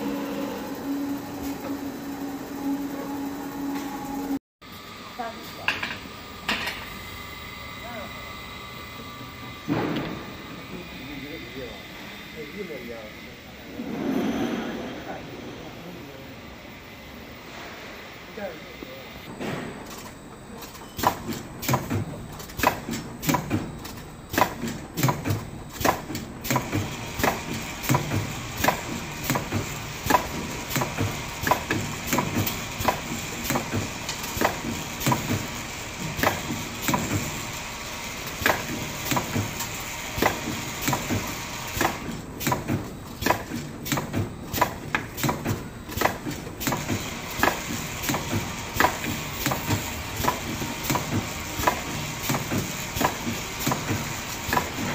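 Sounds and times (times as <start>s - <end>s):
steady machine noise: 0.0s - 42.4s, 45.6s - 54.9s
faint high hum: 10.3s - 19.3s
machine clicks and knocks: 19.4s - 37.4s, 38.3s - 54.9s.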